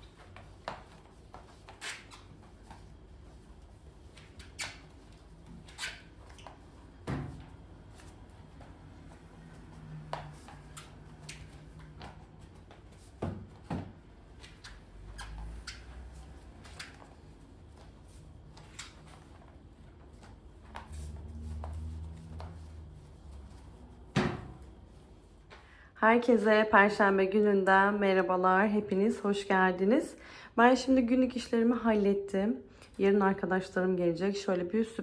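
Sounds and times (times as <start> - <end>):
mop sliding on tiled floor: 0.0 - 25.6.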